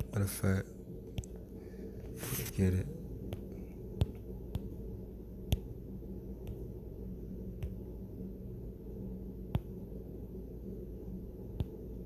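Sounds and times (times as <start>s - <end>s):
low steady hum: 0.0s - 12.0s
fingertip taps on touchscreen: 3.3s - 4.8s, 5.4s - 5.8s, 6.4s - 6.7s, 7.5s - 7.8s, 9.5s - 9.8s, 11.5s - 11.8s.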